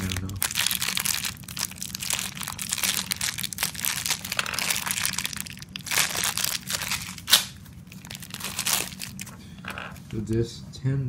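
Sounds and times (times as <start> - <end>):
plastic bag crinkling: 0.0 - 10.3.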